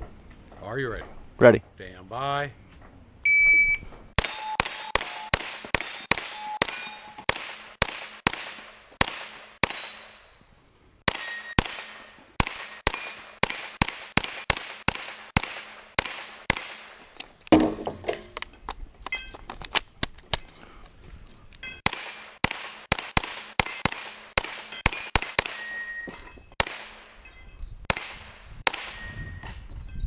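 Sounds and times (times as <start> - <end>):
shot timer beep: 3.3 - 5.3
steel targets ringing: 4.2 - 7.3, 11.1 - 15.0, 16.5 - 17.2, 24.6 - 29.3
rifle gunshots: 4.2 - 10.2, 11.1 - 17.0, 21.8 - 25.7, 26.6 - 27.2, 27.9 - 29.0.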